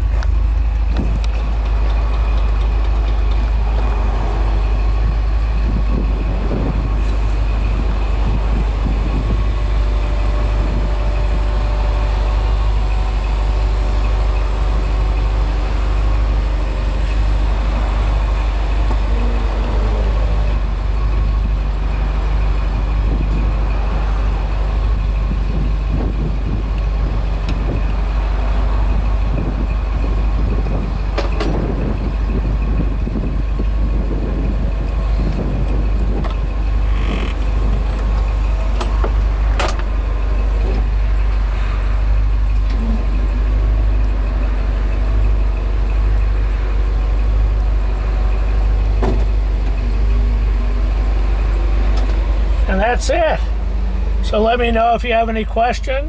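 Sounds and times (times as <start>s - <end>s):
car engine idling: 0.0s - 56.0s
sharp clunks from linkage: 38.8s - 39.9s.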